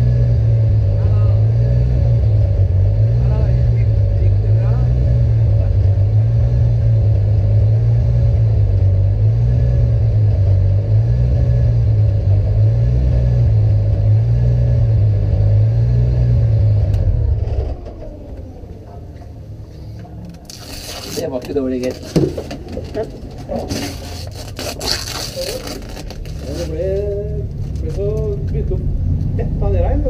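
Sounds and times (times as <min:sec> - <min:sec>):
car engine idling loudly: 0:00.0 - 0:20.1.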